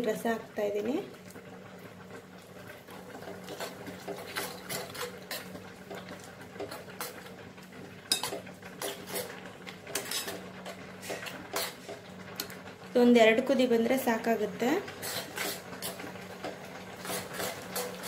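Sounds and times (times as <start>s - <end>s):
metal spoon scraping a pan: 3.4s - 7.3s, 8.1s - 12.0s, 14.9s - 18.0s.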